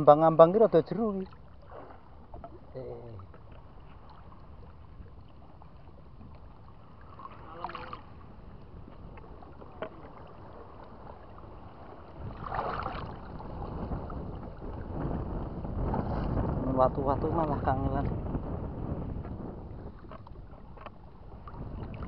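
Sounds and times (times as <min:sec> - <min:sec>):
water sloshing as person wades: 0:00.8 - 0:15.2, 0:19.6 - 0:22.0
water splash: 0:01.2 - 0:04.7, 0:07.0 - 0:08.2, 0:09.4 - 0:14.2.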